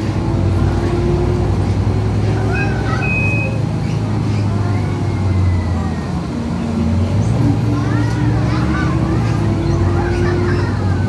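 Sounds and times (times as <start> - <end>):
bus diesel engine drone: 0.0 - 11.0
high beeps: 3.0 - 3.6.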